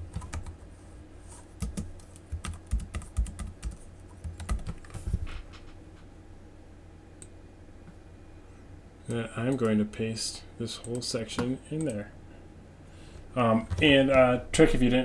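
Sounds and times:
typing on a computer keyboard: 0:00.1 - 0:00.6, 0:01.6 - 0:05.0.

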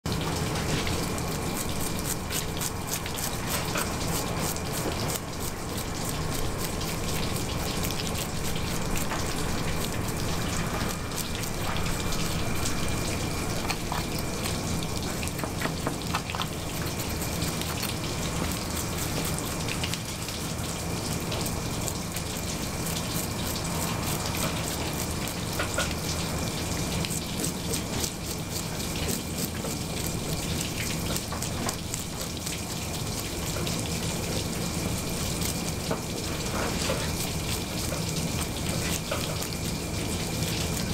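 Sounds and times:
background hum: 0:00.1 - 0:40.9.

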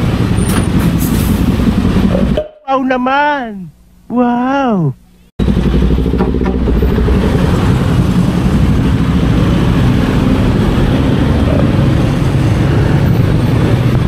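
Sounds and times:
road and wind noise: 0:00.0 - 0:02.6, 0:05.4 - 0:14.0
motorcycle engine running: 0:00.8 - 0:02.5, 0:05.4 - 0:11.7.

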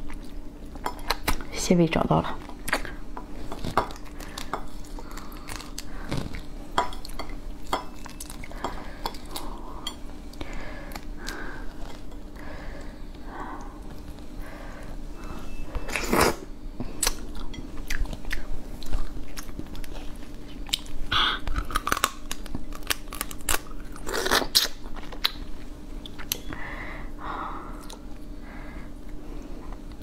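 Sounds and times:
wet chewing and sucking: 0:03.5 - 0:07.2
crab shell crunching: 0:21.5 - 0:25.4.

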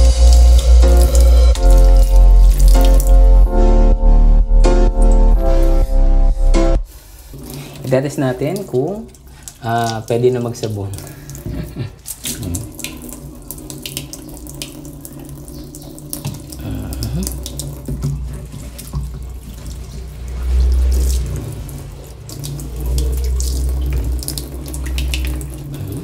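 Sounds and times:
water running into metal sink: 0:00.0 - 0:03.4, 0:07.1 - 0:26.0
low rumbles: 0:00.0 - 0:06.9, 0:19.1 - 0:26.0
hands splashing under water: 0:11.3 - 0:13.0.

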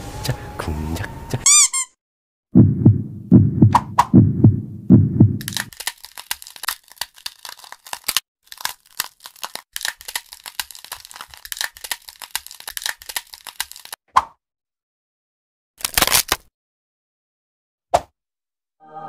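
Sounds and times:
heartbeat thumps: 0:02.6 - 0:05.5
needle scraping hard sugar candy: 0:05.4 - 0:14.0.

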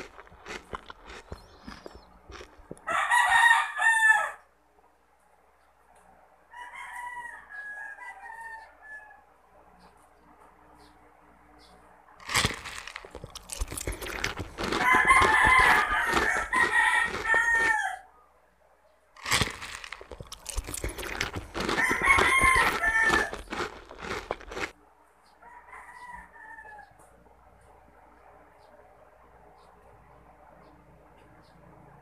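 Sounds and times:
close-up eating clicks and smacks: 0:00.0 - 0:02.9, 0:12.2 - 0:17.8, 0:19.2 - 0:24.8
rooster crowing: 0:02.3 - 0:04.5, 0:06.5 - 0:09.3, 0:13.6 - 0:18.1, 0:20.5 - 0:24.7, 0:25.4 - 0:27.0.

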